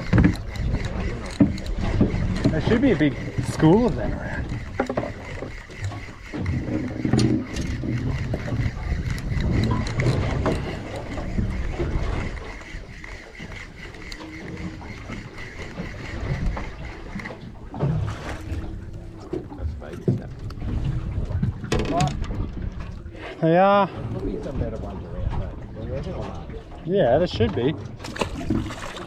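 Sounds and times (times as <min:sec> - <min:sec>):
spinning reel whirring: 0:00.0 - 0:17.7
water noise: 0:00.0 - 0:29.0
wind: 0:00.0 - 0:29.0.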